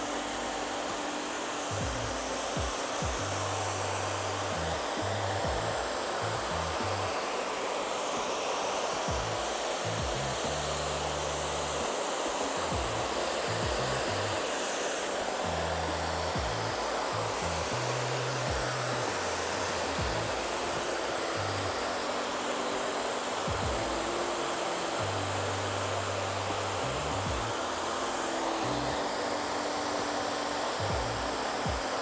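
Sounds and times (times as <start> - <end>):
hair dryer blowing: 0.0 - 32.0
background music with bass line: 1.7 - 7.1, 9.1 - 11.9, 12.6 - 14.4, 15.5 - 22.0, 23.4 - 29.7, 30.7 - 32.0.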